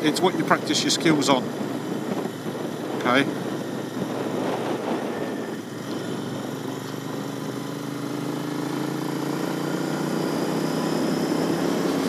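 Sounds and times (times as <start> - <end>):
wind noise: 0.0 - 7.9
motorcycle engine accelerating: 0.0 - 12.0
road noise: 0.0 - 12.0.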